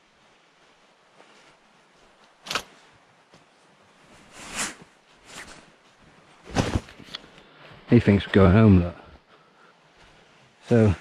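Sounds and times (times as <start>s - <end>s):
rustling: 0.0s - 7.8s.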